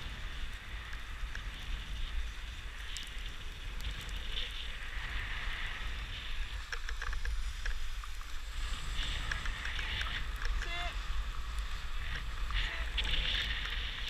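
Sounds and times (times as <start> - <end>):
skis sliding on snow: 0.0 - 14.0
wind on microphone: 0.0 - 14.0.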